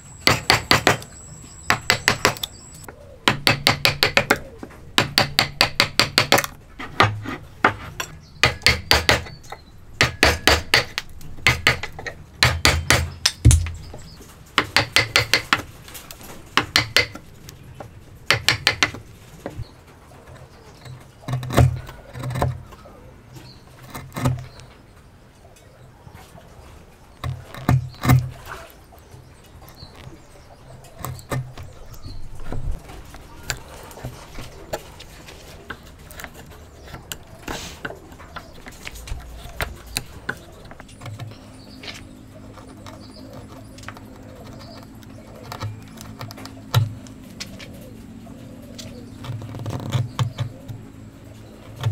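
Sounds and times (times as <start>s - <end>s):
hand paring knocks: 0.2s - 1.1s, 1.7s - 2.5s, 3.2s - 14.0s, 14.6s - 15.7s, 16.5s - 17.2s, 18.3s - 19.6s
chisel tapping into wood: 3.3s - 7.8s, 8.4s - 9.4s, 14.6s - 15.6s, 16.6s - 17.2s, 18.3s - 19.0s.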